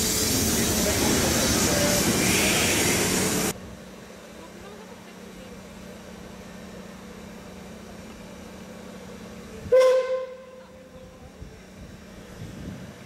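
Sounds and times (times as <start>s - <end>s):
steam locomotive whistle blast: 9.7s - 10.6s.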